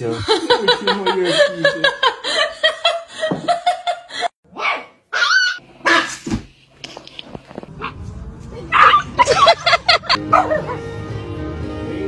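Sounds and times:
small dog yipping: 4.6 - 6.2, 8.7 - 9.1.

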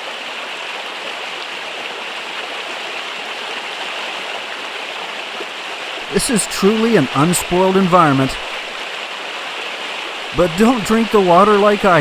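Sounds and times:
stream rushing over stones: 0.0 - 12.0.

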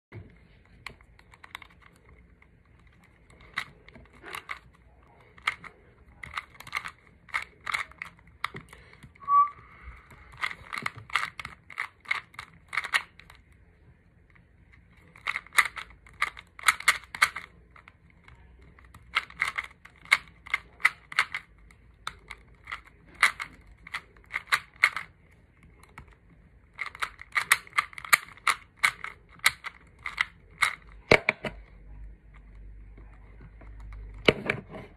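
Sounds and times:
plastic puzzle cube clicking: 0.6 - 9.2, 10.0 - 13.5, 14.3 - 31.7
brief high beep: 9.2 - 9.8.

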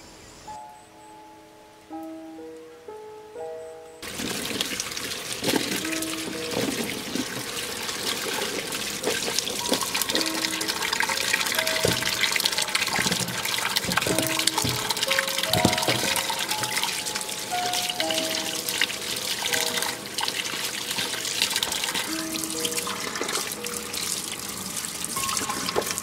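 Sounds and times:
light background music: 0.0 - 4.0, 9.3 - 26.0
splashing and small clatters: 4.0 - 26.0
tap water running into sink: 4.0 - 26.0.

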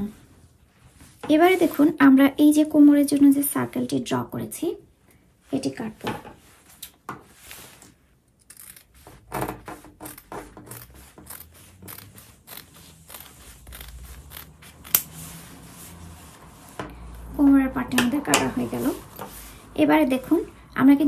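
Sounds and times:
scissors cutting fabric: 8.4 - 15.7.

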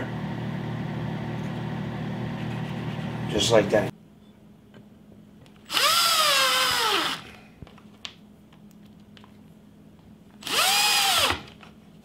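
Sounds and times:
cordless drill motor whine: 5.6 - 7.4, 10.4 - 11.6.

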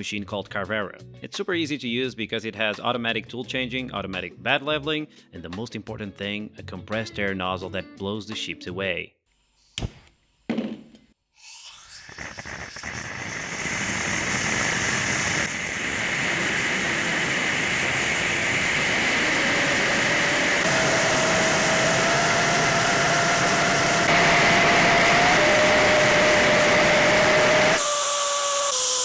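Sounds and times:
flame rushing hiss: 11.8 - 27.8.

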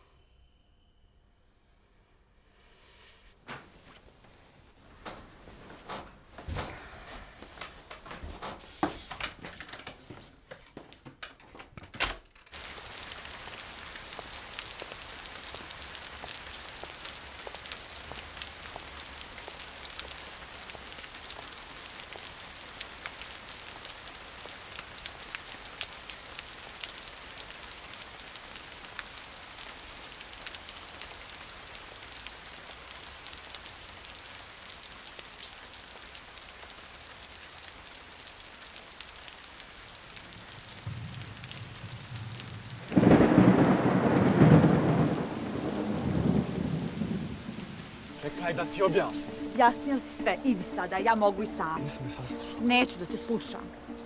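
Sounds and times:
rain on wet pavement: 12.5 - 51.8.

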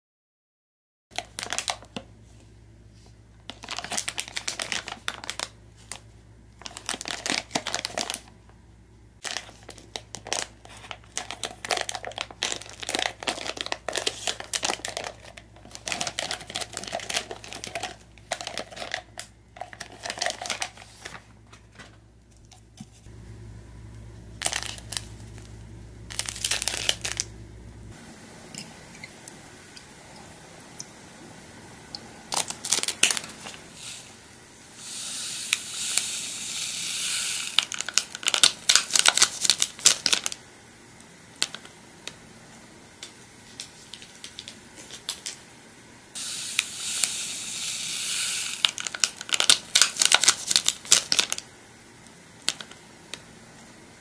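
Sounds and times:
plastic packet crinkling: 1.2 - 2.0, 3.5 - 8.4, 9.2 - 23.1, 24.4 - 27.3, 32.3 - 34.0, 37.4 - 40.4, 43.4 - 45.4, 48.4 - 51.5.

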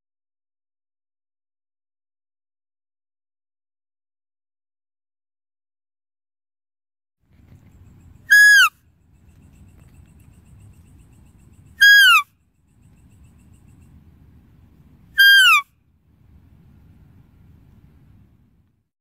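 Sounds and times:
faint low rumble: 7.3 - 11.8, 12.4 - 18.9
deer calling: 8.2 - 8.7, 11.7 - 12.3, 15.2 - 15.7.

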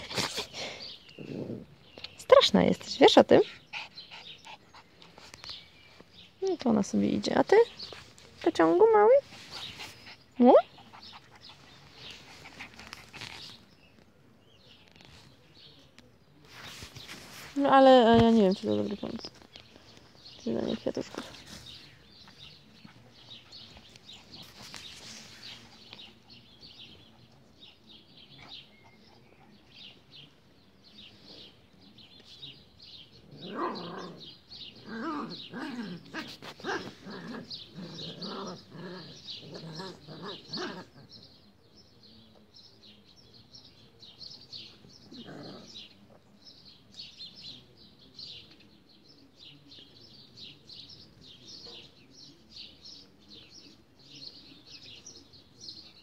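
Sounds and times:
birds chirping: 0.0 - 56.0
dogs growling and yipping: 1.1 - 1.8, 33.2 - 41.2, 45.0 - 45.9.

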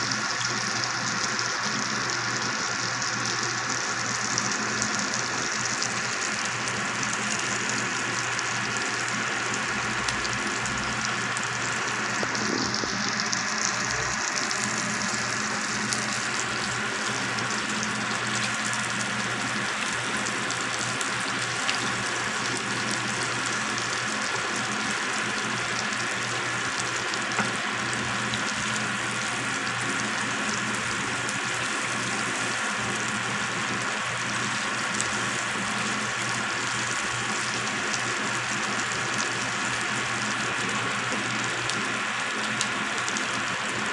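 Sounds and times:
fish sizzling in butter: 0.0 - 43.9.

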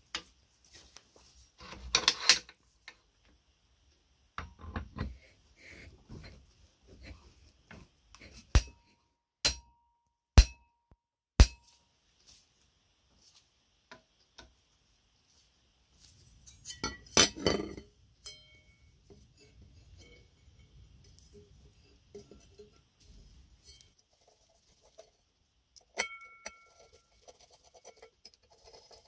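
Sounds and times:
sharp metallic knocks: 9.4 - 9.8, 10.4 - 10.7.

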